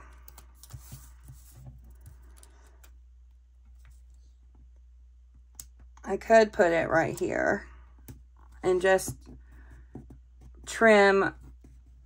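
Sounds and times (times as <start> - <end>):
low steady hum: 0.0 - 12.0
paper sticker rustling and tapping: 0.1 - 2.8.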